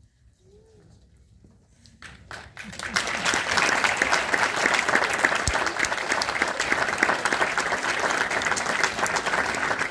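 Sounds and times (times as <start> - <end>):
audience applauding: 2.0 - 9.9.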